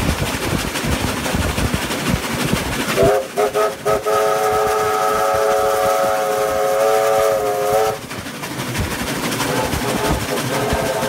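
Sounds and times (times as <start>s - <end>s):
train rumble and clatter: 0.0s - 11.0s
steam locomotive whistle: 3.0s - 8.0s, 9.5s - 11.0s.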